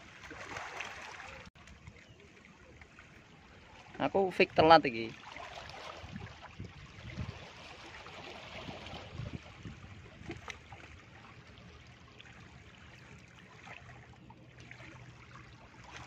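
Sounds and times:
small waves washing against rocks: 3.4 - 11.5.

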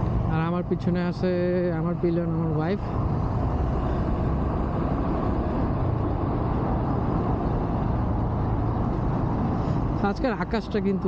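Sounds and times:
low motorcycle engine hum: 0.0 - 11.0
wind and road noise: 0.0 - 11.0.

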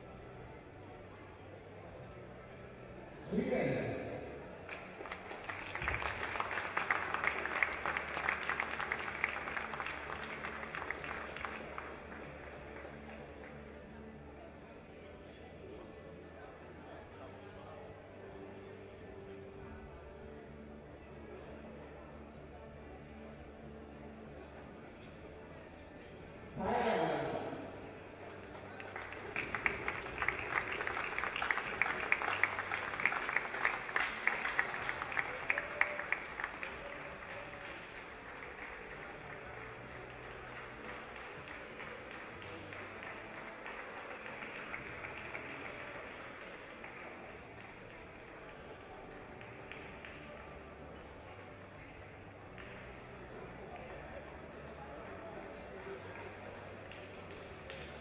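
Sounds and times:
crowd applauding: 4.6 - 14.0, 28.1 - 58.0.

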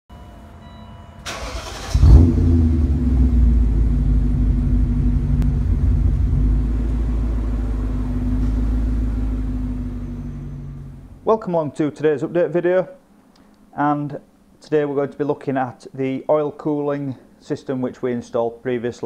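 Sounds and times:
car engine starting and idling: 1.2 - 11.2.

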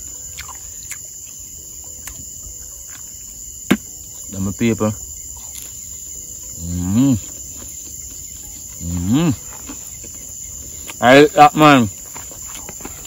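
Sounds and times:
crickets chirring: 0.0 - 13.0
man humming with mouth full: 6.6 - 7.3, 8.8 - 9.6.

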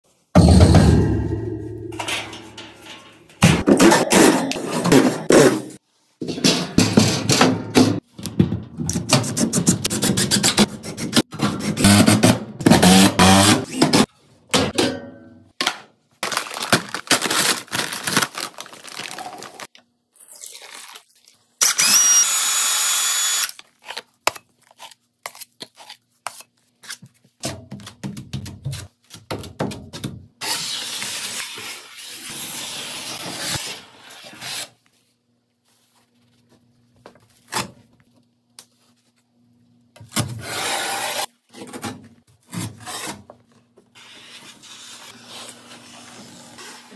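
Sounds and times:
tools knocking and scraping: 0.4 - 9.6
powder bag being opened: 16.2 - 19.7
power tool whirring: 21.6 - 23.6.

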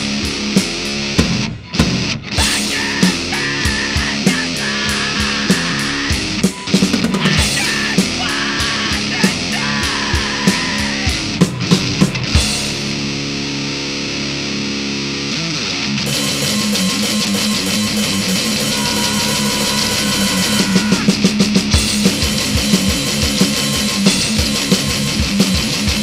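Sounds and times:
rock band playing: 0.0 - 26.0
electric guitar chord ringing: 9.8 - 26.0.

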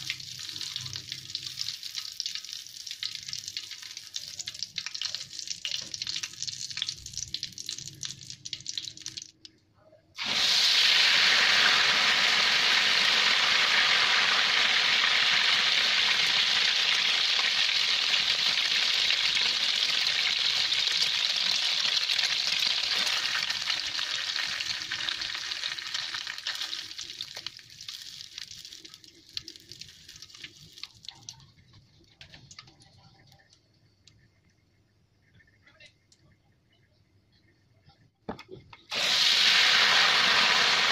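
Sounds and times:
egg sizzling in hot oil: 0.0 - 9.5, 10.2 - 31.3, 38.9 - 40.9.

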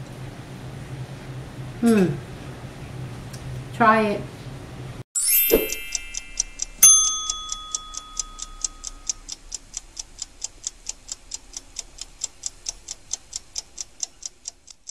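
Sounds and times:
bright bell ding: 5.2 - 9.1
fast clock-like ticking: 5.7 - 14.9.

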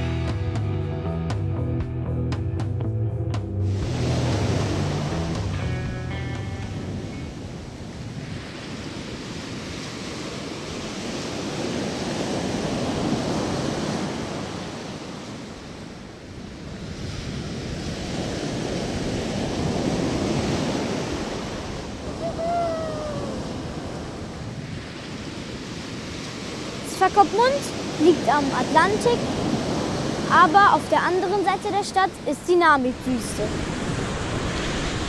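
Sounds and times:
surf breaking on beach: 3.6 - 6.0, 6.7 - 35.0
short falling cry: 22.1 - 23.6.

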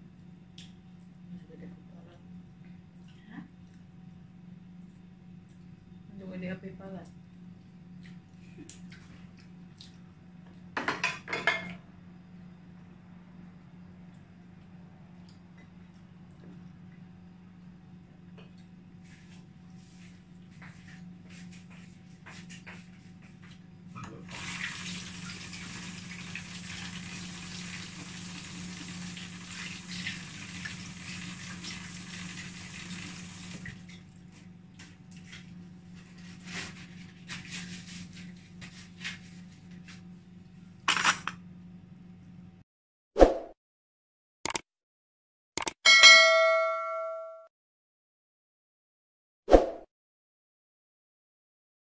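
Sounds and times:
dishes clattering: 10.8 - 11.8
kitchen tap running: 24.2 - 34.1.

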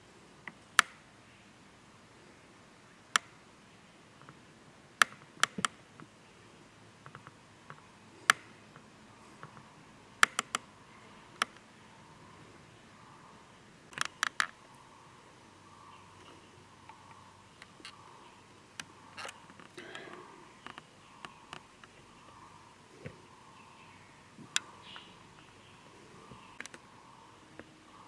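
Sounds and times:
faint steady background noise: 0.0 - 28.0
sharp irregular clicks: 3.1 - 3.4, 5.0 - 6.1, 10.2 - 10.7, 13.9 - 14.6, 26.5 - 26.8.

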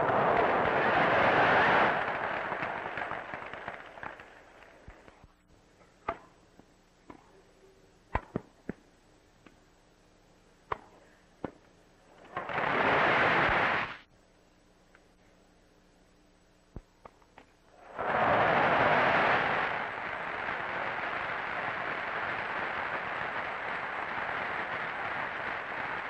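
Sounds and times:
crowd applause: 0.0 - 4.9, 17.9 - 26.0
tennis balls bouncing on grass: 6.0 - 7.4, 8.1 - 9.6, 10.7 - 11.7
tennis balls struck with racquets: 6.0 - 7.4, 8.1 - 8.8, 10.7 - 11.7.

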